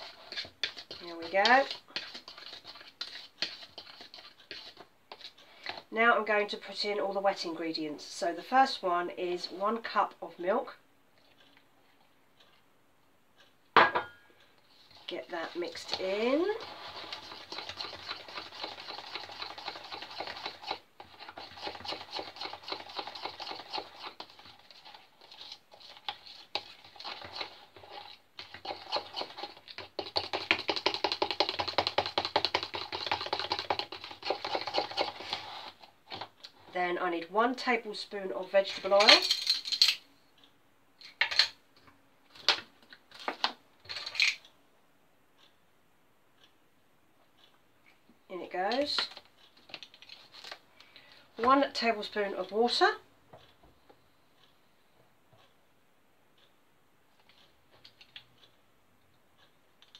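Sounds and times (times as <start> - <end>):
spoon scraping plastic jug: 0.0 - 5.9, 14.7 - 36.8
plastic spoons clicking and rattling: 48.7 - 50.6.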